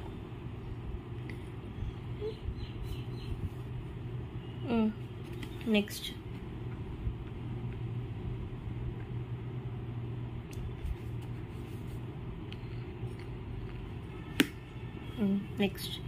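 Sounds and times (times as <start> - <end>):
low hum and rumble: 0.0 - 16.0.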